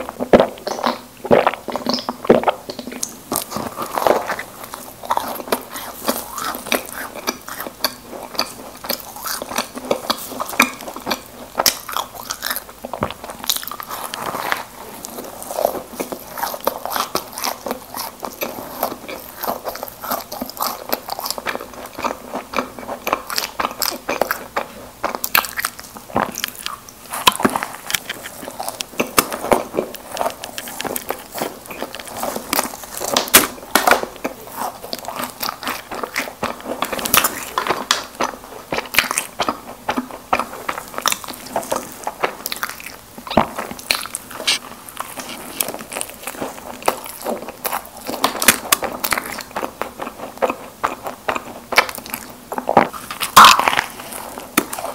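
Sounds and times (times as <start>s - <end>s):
chewing and biting: 0.0s - 54.9s.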